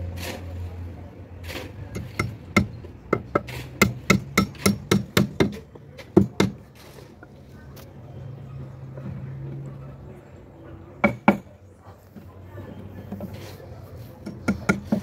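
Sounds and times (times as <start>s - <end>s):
hammer nailing wood: 2.0s - 6.6s, 11.0s - 11.5s, 14.2s - 15.0s.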